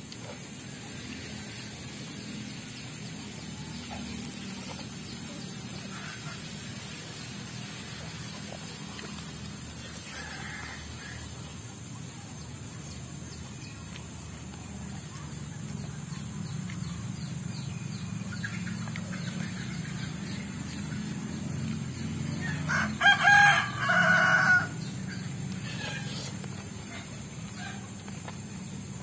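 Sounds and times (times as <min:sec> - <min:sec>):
rooster crowing: 0:10.0 - 0:11.3, 0:22.4 - 0:24.8.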